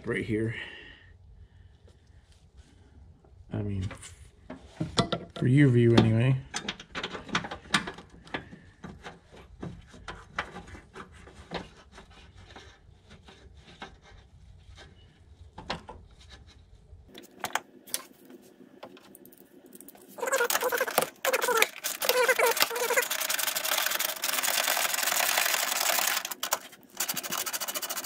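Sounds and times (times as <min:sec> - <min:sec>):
metal parts clicking and knocking: 0:19.2 - 0:28.0.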